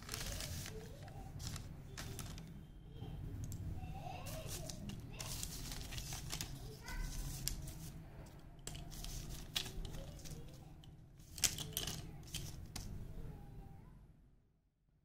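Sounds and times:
slate pencils clicking together: 4.5 - 12.9.

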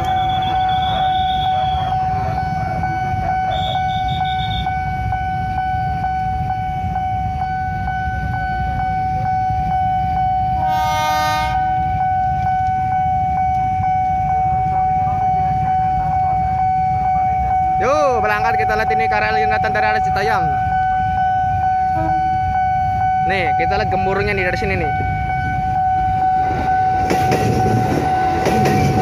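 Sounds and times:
level crossing alarm tone: 0.0 - 29.0
train horn blast: 10.6 - 12.0, 21.9 - 22.3.

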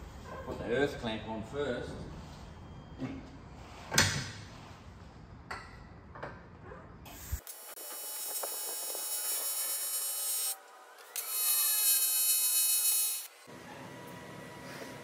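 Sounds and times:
welding arc buzzing: 7.1 - 13.5.

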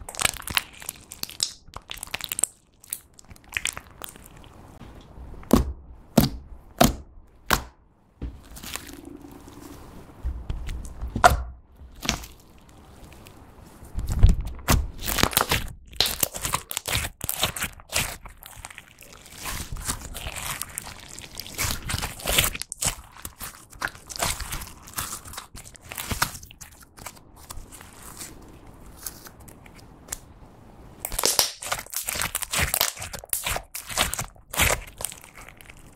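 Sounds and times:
slime squishing and popping: 0.0 - 4.5, 14.6 - 27.2, 31.0 - 35.9.

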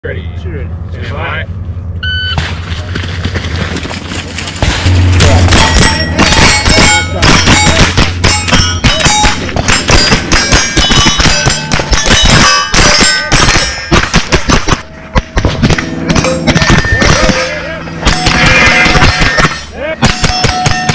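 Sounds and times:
rapid rifle fire: 4.6 - 20.9
steel targets clanging: 4.6 - 20.9.

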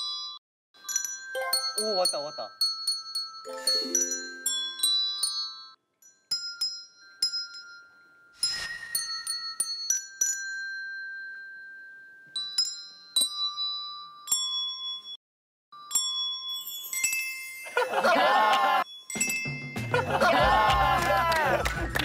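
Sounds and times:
handbells ringing a melody: 0.0 - 15.2, 15.8 - 22.0
music: 3.5 - 4.6, 19.2 - 22.0.

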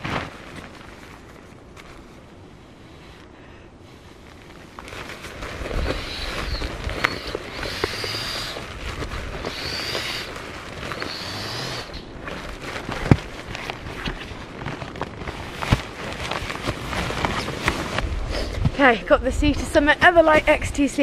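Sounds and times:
crinkling fabric: 0.0 - 2.5, 4.0 - 19.0
rush of air from pump sack: 2.6 - 14.4.

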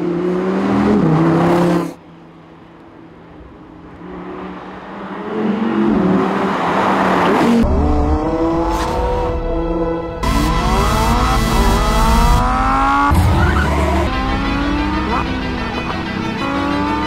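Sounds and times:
sports car engine under throttle: 10.2 - 17.0.

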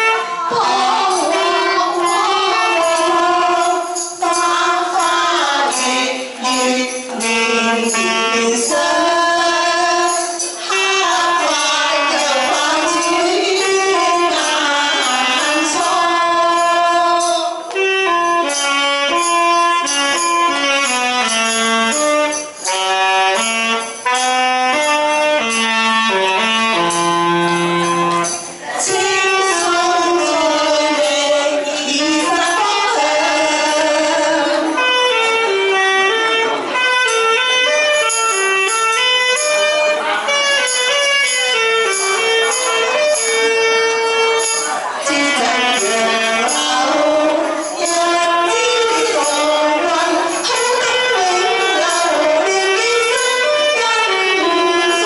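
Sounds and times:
women singing: 0.0 - 18.6, 28.2 - 36.5, 41.9 - 55.0
alto saxophone: 0.0 - 55.0
rhythmic percussion beat: 0.0 - 55.0.

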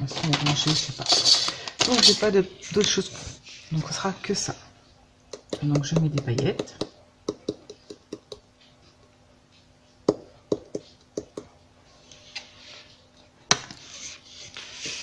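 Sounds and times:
plastic jar tapping: 5.3 - 8.5.

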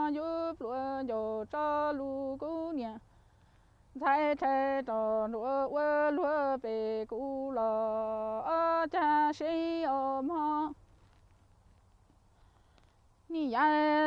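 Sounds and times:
woman singing unaccompanied: 0.0 - 3.1, 3.9 - 10.8, 13.2 - 14.0.

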